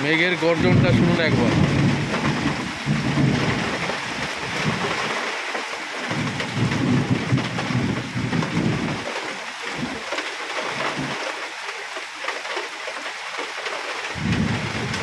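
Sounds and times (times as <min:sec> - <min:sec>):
heavy rain pouring: 0:00.0 - 0:15.0
rolling thunder: 0:00.6 - 0:05.2, 0:06.1 - 0:09.2, 0:14.1 - 0:15.0.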